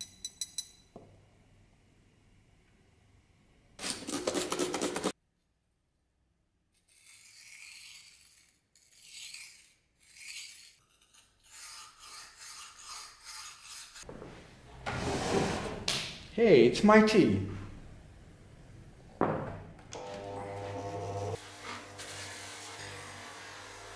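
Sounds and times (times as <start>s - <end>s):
sandpaper rubbing on knife blade: 6.9s - 14.1s.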